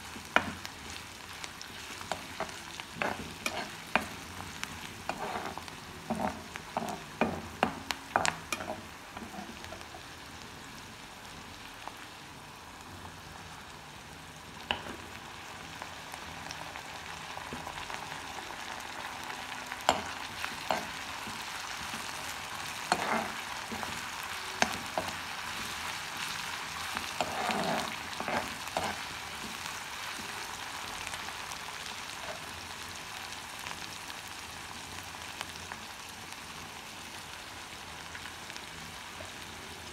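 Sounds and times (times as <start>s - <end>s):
onions sizzling in hot oil: 0.0s - 39.9s
spoon scraping and clinking on pan: 2.1s - 4.2s, 5.1s - 9.8s, 19.9s - 21.4s, 22.9s - 24.0s, 27.0s - 29.6s.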